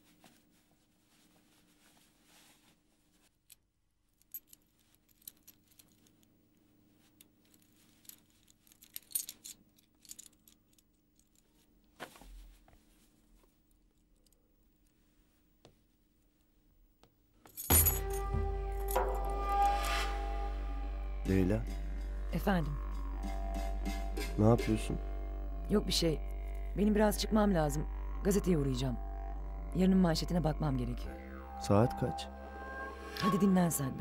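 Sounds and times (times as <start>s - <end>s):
keys jingling: 7.5s - 11.5s, 17.5s - 19.4s
low steady hum: 17.5s - 34.0s
background music: 17.6s - 34.0s.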